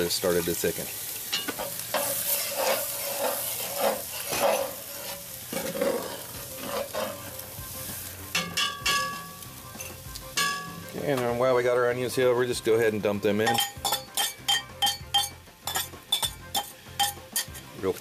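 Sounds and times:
metal spatula scraping pot: 1.3s - 7.4s, 13.4s - 17.8s.

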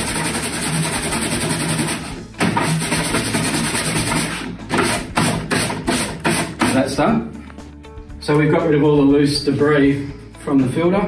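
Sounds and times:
brush scrubbing mesh filter: 0.0s - 7.0s
background music with a beat: 0.0s - 11.0s.

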